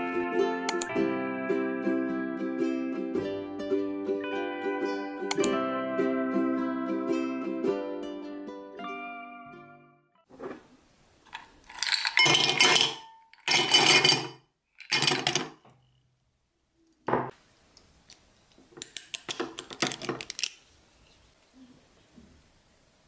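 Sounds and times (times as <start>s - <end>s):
ice cubes clinking in glass: 11.7s - 15.4s.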